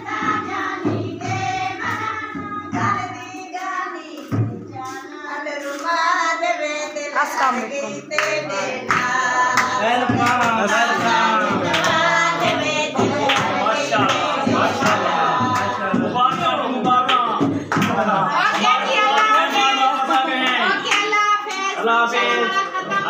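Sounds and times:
group singing folk song: 0.0s - 23.0s
hand claps: 1.8s - 6.0s, 8.1s - 21.6s.

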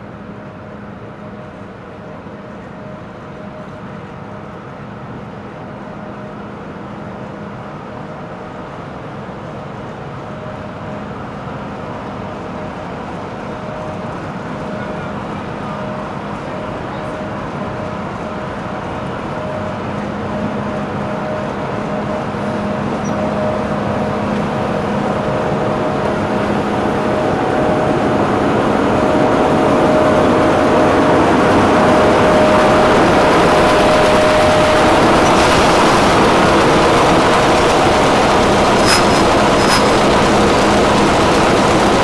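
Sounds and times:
diesel locomotive engine running: 0.0s - 42.0s
steady whine: 10.0s - 42.0s.

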